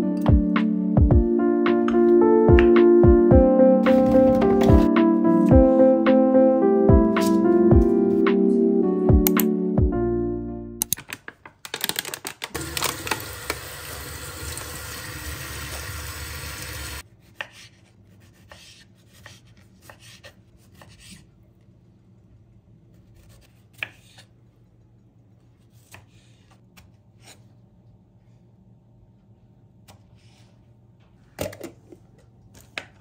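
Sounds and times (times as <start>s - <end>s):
tap water running into sink: 12.6s - 17.0s.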